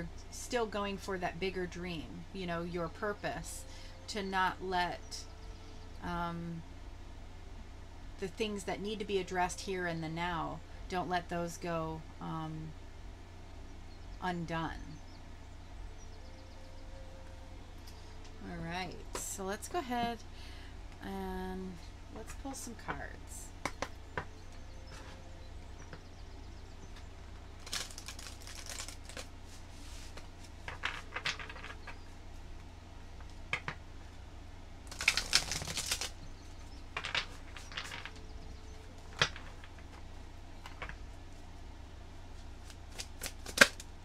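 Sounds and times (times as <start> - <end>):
cards being shuffled: 27.6 - 31.9, 34.9 - 36.2, 42.4 - 43.9.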